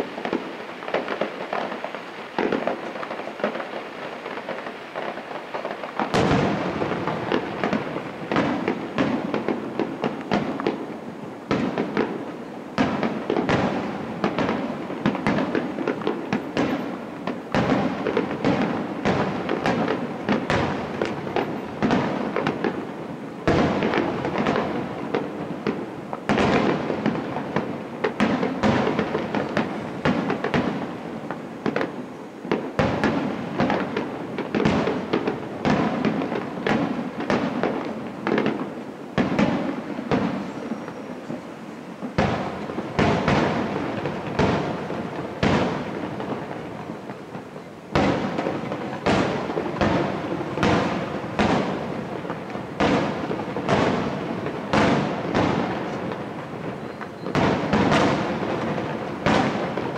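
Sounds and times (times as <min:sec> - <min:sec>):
firework shells bursting: 0:00.0 - 0:10.9.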